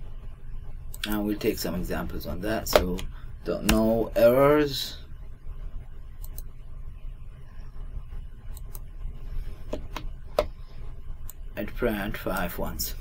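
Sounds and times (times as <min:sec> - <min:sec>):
steady low hum: 0:00.0 - 0:13.0
computer mouse clicks: 0:06.2 - 0:06.5, 0:08.5 - 0:08.9.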